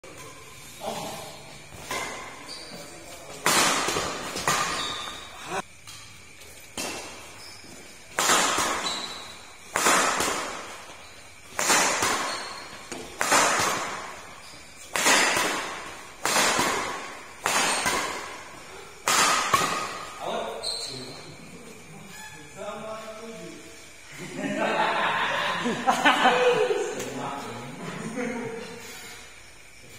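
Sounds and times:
racquets hitting shuttlecock: 0:00.1 - 0:20.6.

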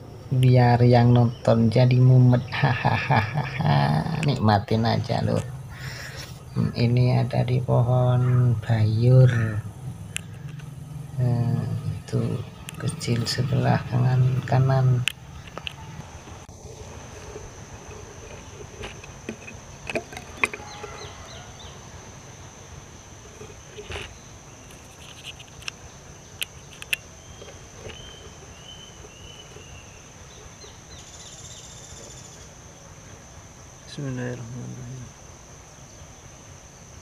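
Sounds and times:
insects droning: 0:00.0 - 0:37.0
clicks and knocks: 0:17.8 - 0:20.8.

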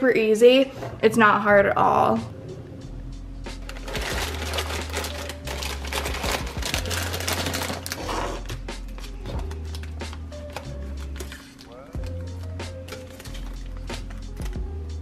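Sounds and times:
background music bass line: 0:01.2 - 0:15.0
plastic bags crinkling: 0:03.6 - 0:12.2, 0:12.8 - 0:14.6.

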